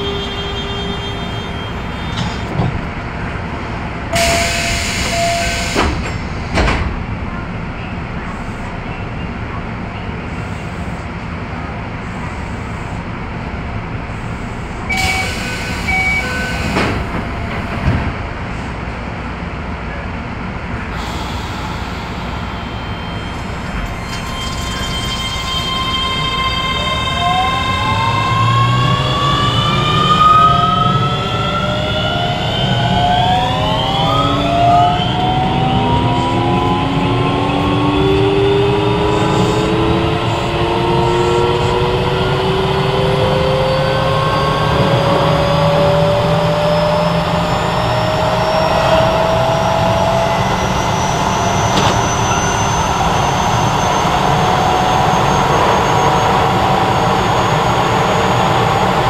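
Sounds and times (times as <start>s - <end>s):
train running rumble: 0.0s - 59.0s
traction motors whining: 21.1s - 59.0s.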